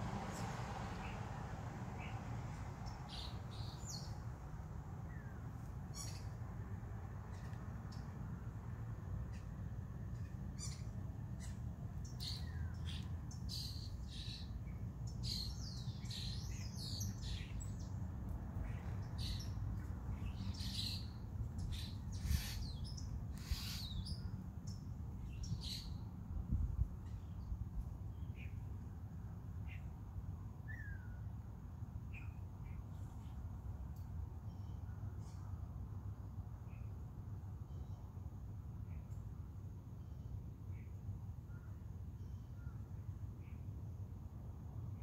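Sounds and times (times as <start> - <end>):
birds chirping: 18.6 - 24.8.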